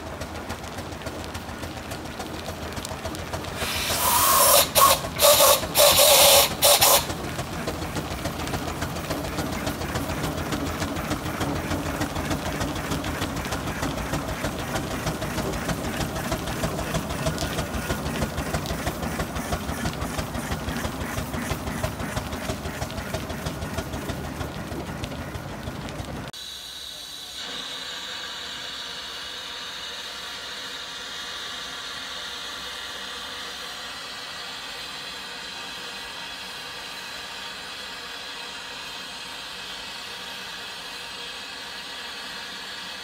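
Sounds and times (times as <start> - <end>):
steam hissing blasts: 1.6 - 25.4, 26.3 - 43.0
steam engine regular beat: 3.6 - 24.7.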